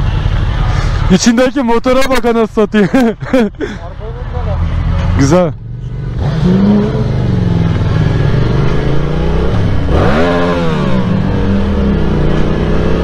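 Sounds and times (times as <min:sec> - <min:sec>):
motorcycle engine accelerating: 0:04.7 - 0:13.0.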